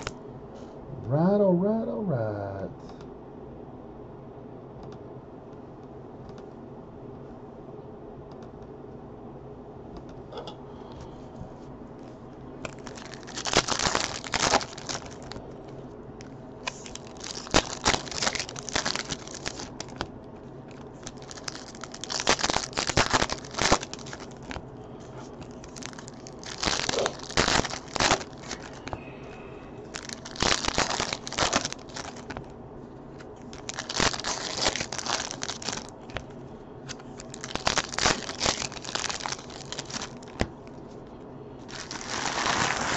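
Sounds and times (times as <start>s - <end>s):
foil wrappers crinkling: 12.6s - 15.5s, 16.6s - 20.1s, 20.7s - 29.0s, 29.8s - 32.5s, 33.2s - 36.3s, 36.9s - 40.8s, 41.6s - 42.9s.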